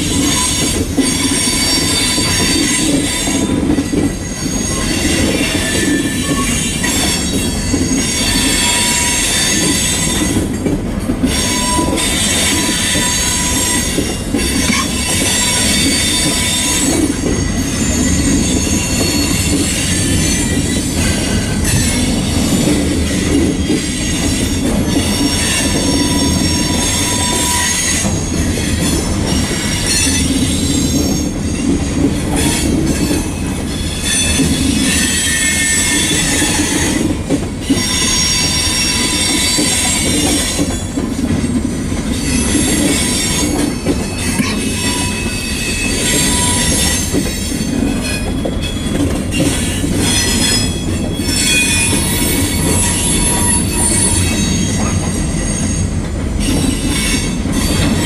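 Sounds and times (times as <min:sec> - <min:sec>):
train wheels rumbling on rails: 0:00.0 - 0:58.0
high-pitched wheel squeal: 0:04.2 - 0:10.4, 0:11.2 - 0:14.0, 0:14.6 - 0:22.1, 0:23.2 - 0:37.1, 0:42.1 - 0:58.0.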